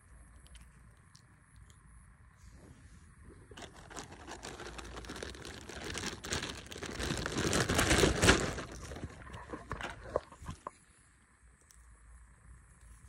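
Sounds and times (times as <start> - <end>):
rustling handling noise: 2.6 - 10.8.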